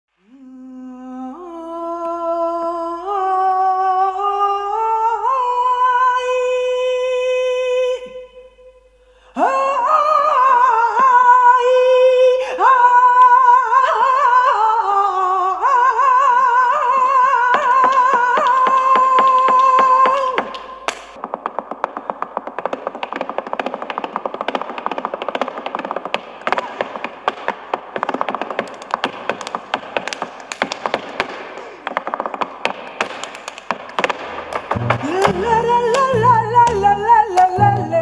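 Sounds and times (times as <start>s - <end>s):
woman singing unaccompanied: 0.2s - 8.5s, 9.4s - 20.6s, 34.7s - 38.0s
sharp taps: 17.8s - 37.8s.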